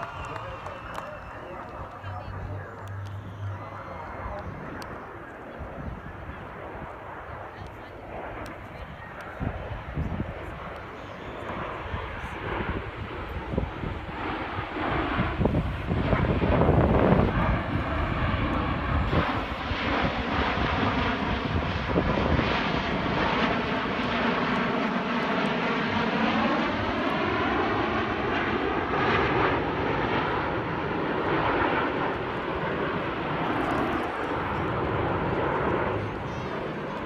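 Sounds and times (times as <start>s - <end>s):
jets roaring overhead: 0.0s - 37.0s.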